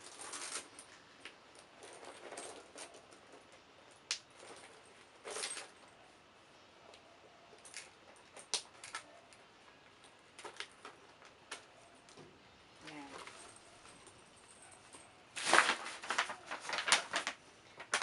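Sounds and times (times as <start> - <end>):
bag rustling: 13.0 - 18.0.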